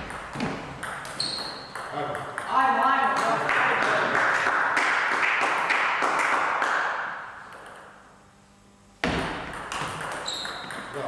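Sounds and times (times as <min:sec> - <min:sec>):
table tennis ball tapping: 0:00.0 - 0:04.0, 0:07.5 - 0:08.0, 0:09.0 - 0:11.0
loud knock: 0:09.0 - 0:10.0.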